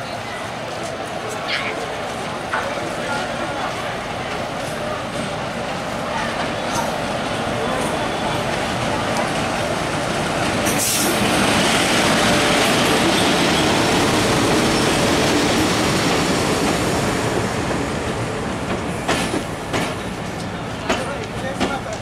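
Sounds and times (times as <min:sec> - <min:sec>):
diesel locomotive passing: 0:00.0 - 0:22.0
train wheels rumbling on rails: 0:00.0 - 0:22.0.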